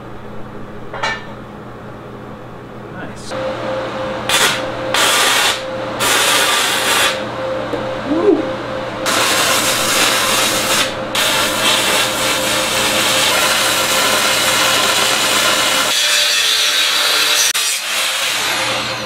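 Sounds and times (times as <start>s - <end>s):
angle grinder grinding steel: 4.3s - 7.3s, 9.0s - 19.0s.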